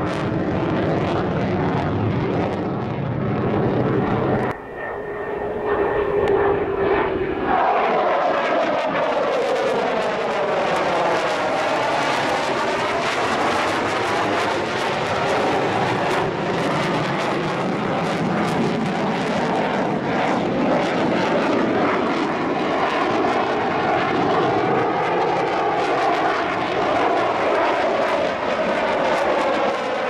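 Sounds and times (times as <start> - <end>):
jet engines roaring overhead: 0.0 - 30.0.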